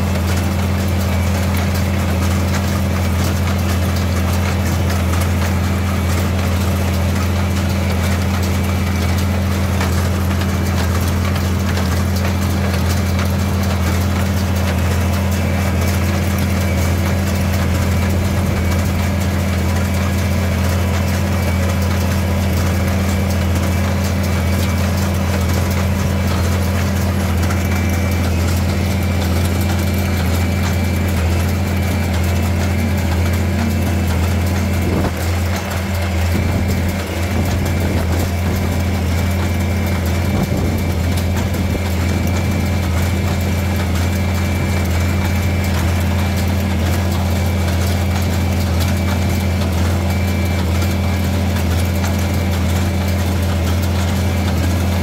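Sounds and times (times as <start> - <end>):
tractor engine running: 0.0 - 55.0.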